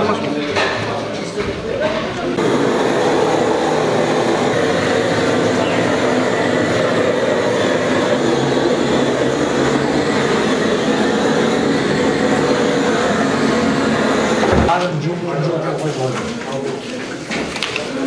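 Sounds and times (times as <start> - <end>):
blowtorch roaring: 2.3 - 14.7.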